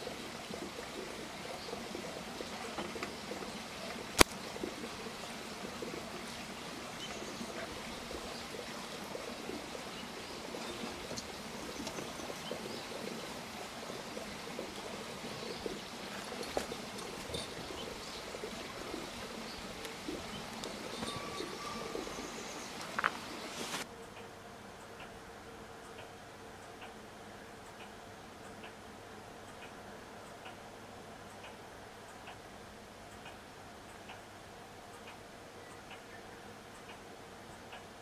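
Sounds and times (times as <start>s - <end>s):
faint chirps and ticks: 0.0s - 38.0s
outdoor background hiss: 0.0s - 38.0s
sharp click: 4.2s - 4.4s.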